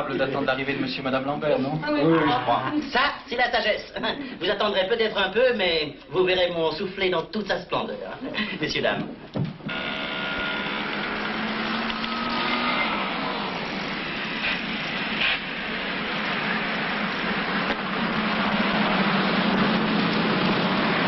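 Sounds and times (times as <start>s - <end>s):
tyre and road noise: 9.5s - 21.0s
van engine running: 9.7s - 21.0s.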